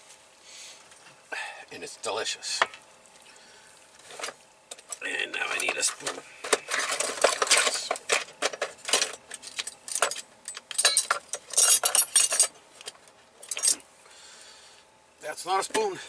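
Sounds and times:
cutlery clinking and rattling: 0:06.7 - 0:12.5.

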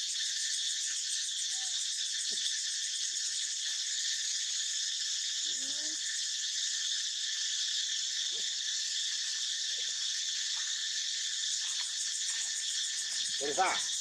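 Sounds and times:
insect chorus drone: 0:00.0 - 0:14.0.

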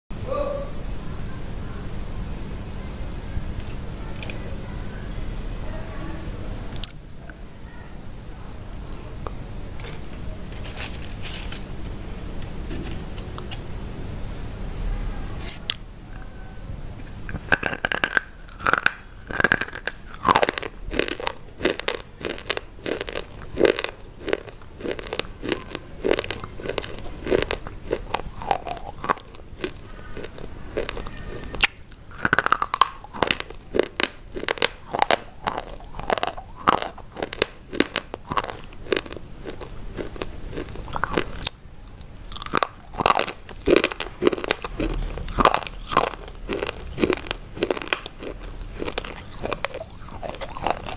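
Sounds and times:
crunchy sticks being chewed: 0:09.2 - 0:11.8, 0:17.1 - 0:50.9.

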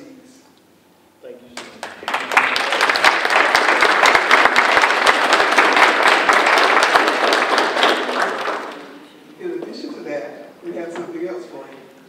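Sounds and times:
audience applauding: 0:01.6 - 0:09.0.

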